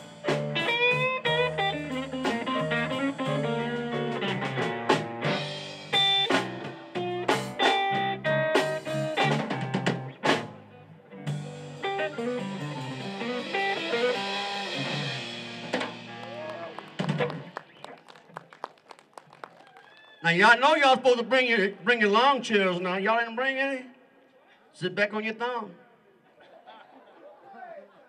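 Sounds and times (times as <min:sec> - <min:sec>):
electric guitar lead lines: 0:00.0 - 0:18.2
drum kit: 0:00.0 - 0:18.7.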